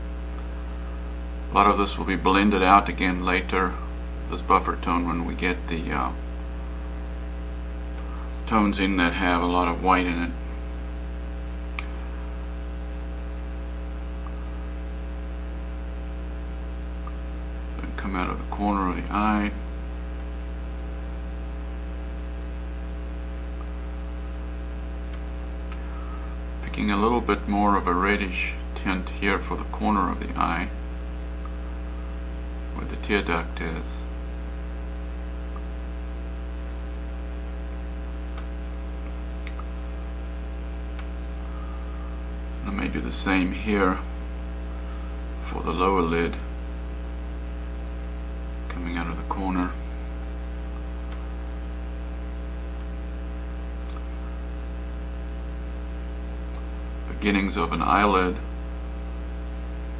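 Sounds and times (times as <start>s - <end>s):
electrical mains hum: 0.0s - 59.9s
faint clicks: 38.3s - 39.7s, 53.8s - 54.4s.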